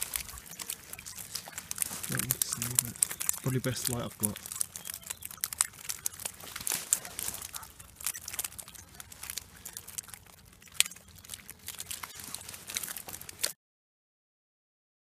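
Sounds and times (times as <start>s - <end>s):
close rustling and crinkling: 0.0s - 13.6s
sharp clicks: 0.0s - 13.6s.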